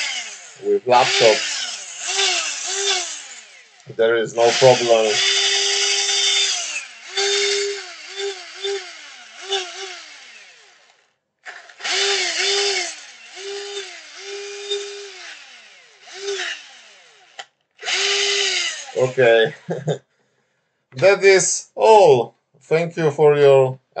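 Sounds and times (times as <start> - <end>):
cordless drill motor whirring: 0.0 - 19.4.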